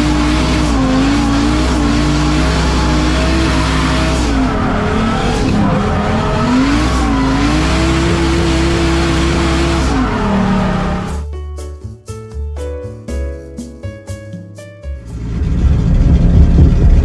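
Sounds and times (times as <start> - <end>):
car engine at high revs: 0.0 - 11.2, 15.1 - 17.0.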